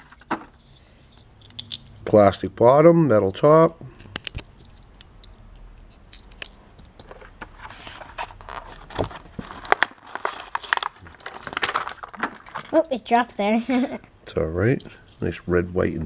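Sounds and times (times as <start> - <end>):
plastic blister pack tearing: 9.5 - 12.6.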